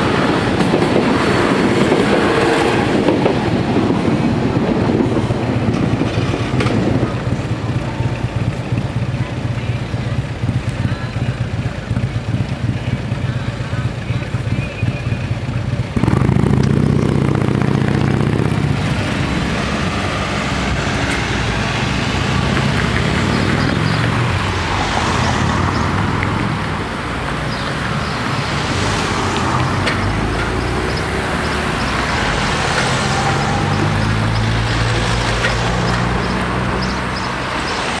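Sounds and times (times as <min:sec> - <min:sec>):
motorcycle pulling away: 0:06.1 - 0:37.8
cars driving past: 0:16.0 - 0:38.0.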